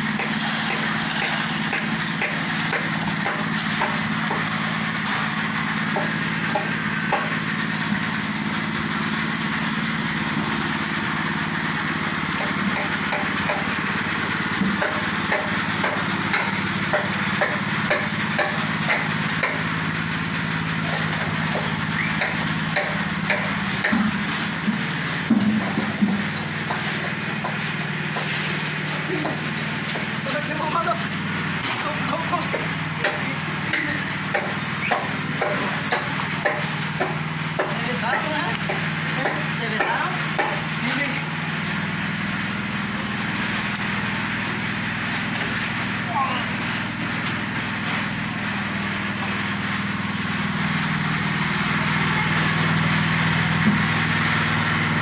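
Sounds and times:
engine running steadily: 0.0s - 55.0s
sharp knocks: 21.0s - 28.3s.

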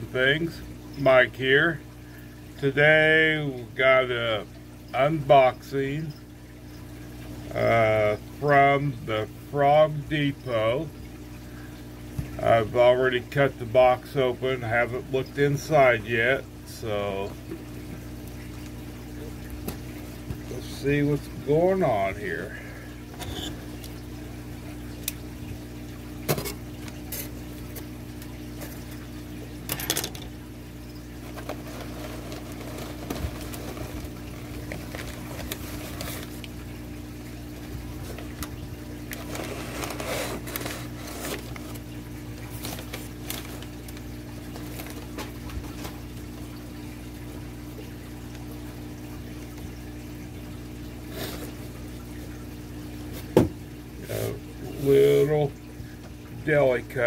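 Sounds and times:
aquarium water bubbling: 0.0s - 57.0s
packing paper rustling: 31.3s - 36.5s, 39.1s - 41.8s, 42.5s - 45.6s.

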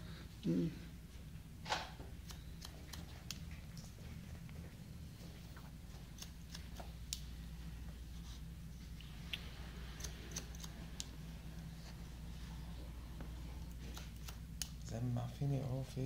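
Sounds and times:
steady low hum: 0.0s - 16.0s
scissors snipping hair: 2.2s - 3.6s, 6.0s - 7.3s, 9.3s - 11.2s, 13.6s - 14.9s.

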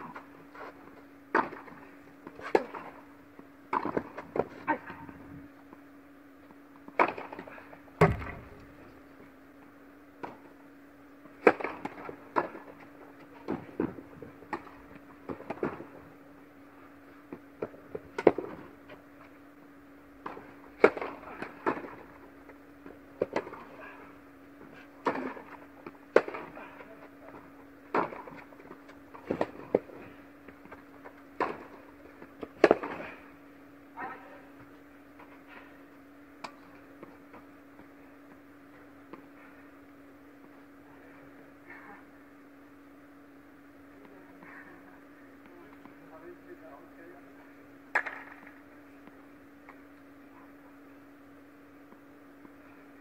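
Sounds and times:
steady low hum: 0.0s - 53.0s
tennis ball struck by rackets: 8.0s - 8.9s.

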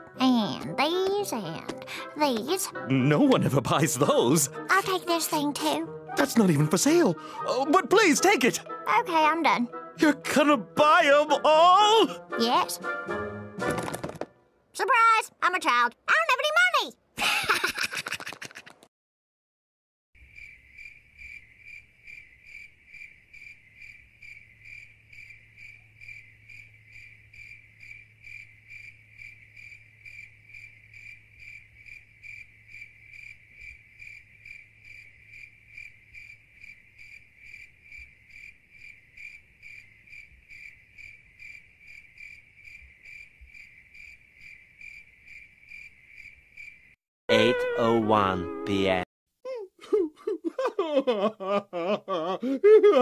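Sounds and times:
cartoon voice: 10.8s - 12.8s, 14.8s - 17.0s, 47.3s - 50.2s
crickets chirping: 20.2s - 47.0s.

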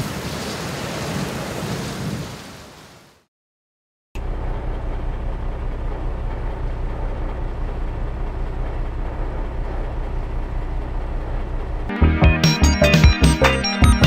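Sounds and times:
hiss: 0.0s - 3.0s
road traffic rumble: 4.2s - 13.7s.

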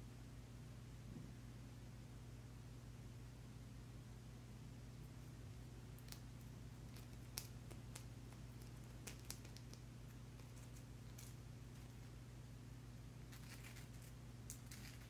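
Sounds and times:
low steady hum: 0.0s - 15.0s
crystal clicks and scratches: 6.9s - 12.1s, 13.3s - 15.0s.

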